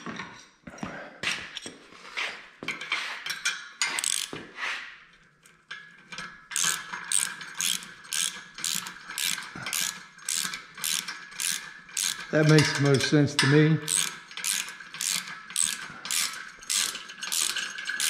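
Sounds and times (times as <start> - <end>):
ratchet wrench clicking: 3.9 - 4.4, 6.5 - 13.1, 13.8 - 18.0.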